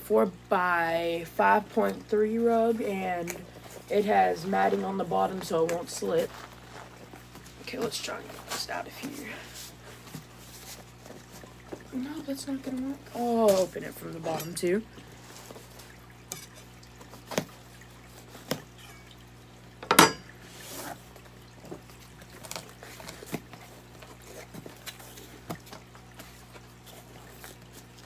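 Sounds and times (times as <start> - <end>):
aquarium hum: 0.0 - 28.0.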